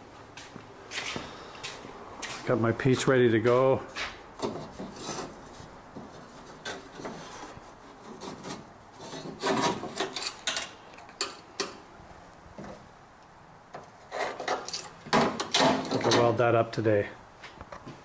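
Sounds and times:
sheet metal scraping: 4.4 - 11.4, 14.0 - 16.4.

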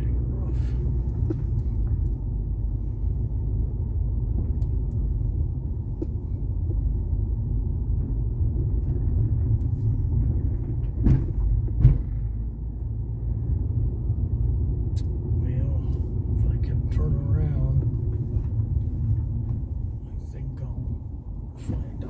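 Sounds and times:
car driving on gravel: 15.4 - 20.8.

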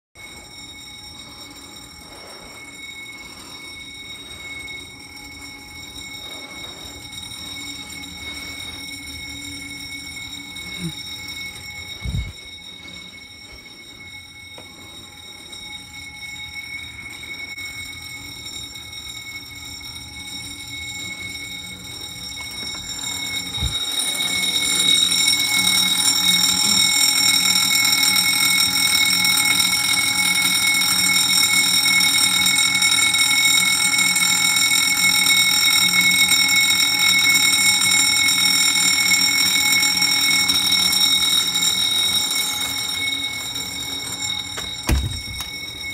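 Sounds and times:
high-pitched alarm tone: 0.2 - 45.9
low thump: 44.8 - 45.5.

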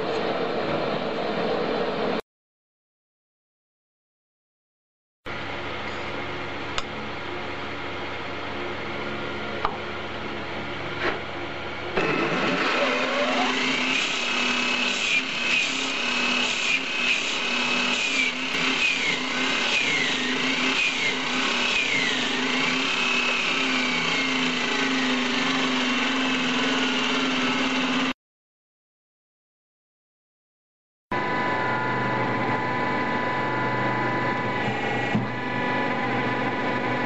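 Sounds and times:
grinder whining on steel: 11.9 - 28.2, 31.2 - 37.0.

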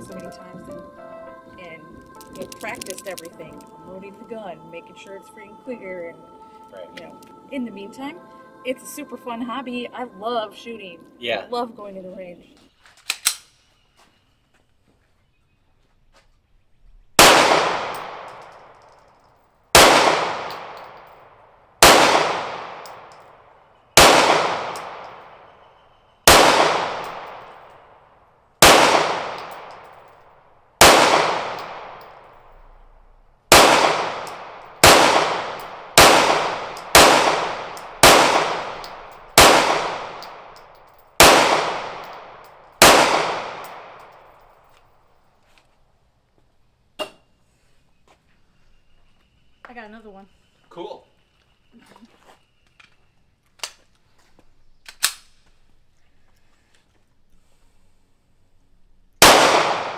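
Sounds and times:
pistol shots with echo: 17.2 - 18.8, 19.7 - 21.2, 21.8 - 23.3, 24.0 - 25.5, 26.2 - 27.7, 28.6 - 30.1, 30.8 - 32.3, 33.5 - 44.5, 59.2 - 59.9.

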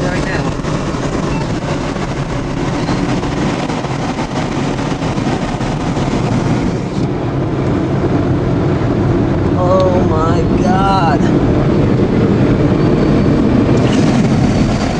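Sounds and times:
rain pelting windshield: 0.0 - 7.1, 13.6 - 14.9
vehicle engine and road noise: 0.0 - 14.9.

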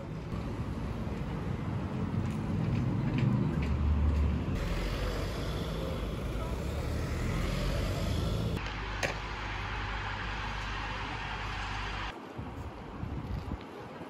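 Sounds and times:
road noise hum: 0.0 - 13.6
taxi passing close: 4.4 - 8.6.

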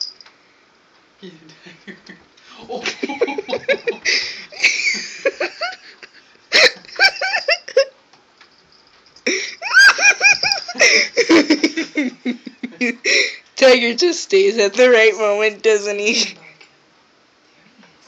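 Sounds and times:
human laughter: 1.7 - 7.9, 9.6 - 13.1.

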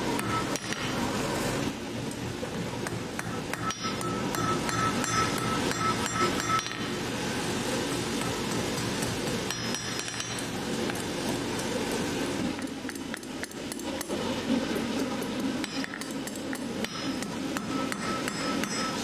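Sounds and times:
hammer striking steel on anvil: 0.2 - 1.0, 2.8 - 7.0, 7.9 - 11.0, 15.6 - 19.0
anvil ringing: 3.2 - 6.9, 16.8 - 19.0.

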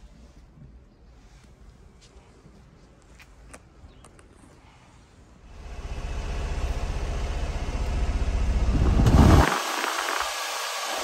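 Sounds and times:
small engine idling: 5.5 - 11.0
air rushing from vents: 7.7 - 11.0.

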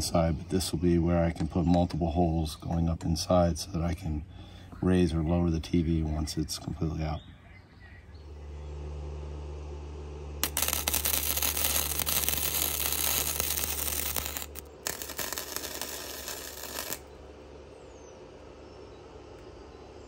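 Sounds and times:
steady low hum: 0.0 - 20.0
welder arc crackling: 10.4 - 17.1.

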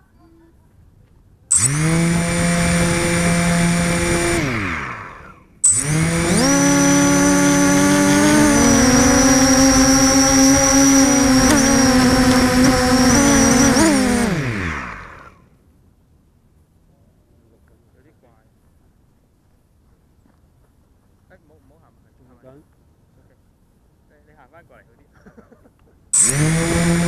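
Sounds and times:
drone motors whining: 1.5 - 15.4, 26.2 - 27.0.

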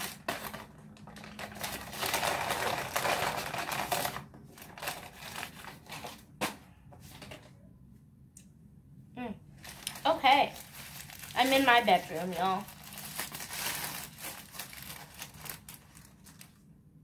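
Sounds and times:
paper bag rustling: 0.0 - 6.4, 9.6 - 16.6.

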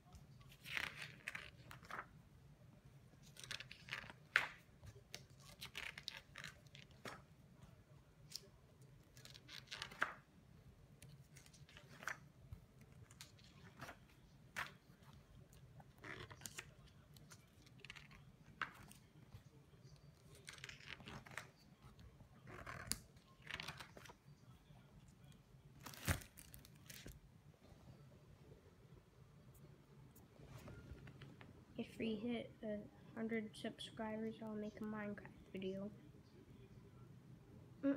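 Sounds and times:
book pages rustling: 0.3 - 2.2, 3.2 - 7.3, 8.2 - 10.3, 11.0 - 27.2.

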